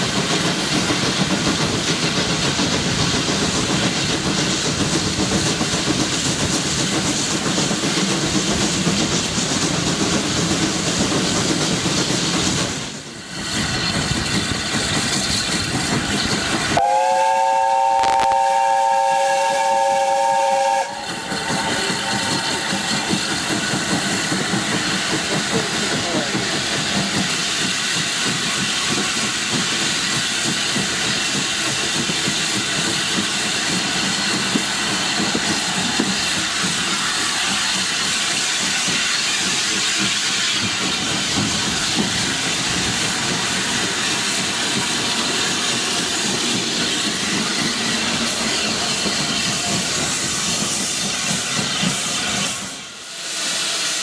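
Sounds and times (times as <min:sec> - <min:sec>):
steam hissing: 0:00.0 - 0:54.0
train running: 0:00.0 - 0:54.0
steam locomotive chime whistle: 0:16.8 - 0:22.6.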